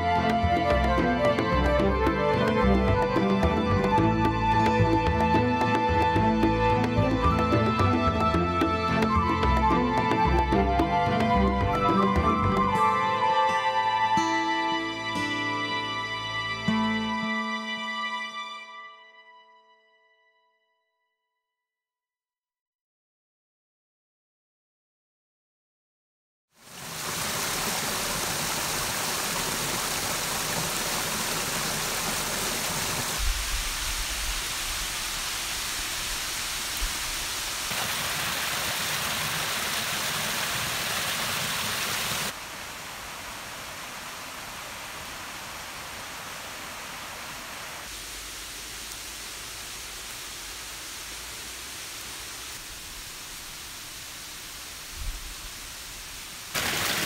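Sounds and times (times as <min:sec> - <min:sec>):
stream rushing over rocks: 0:26.6 - 0:57.0.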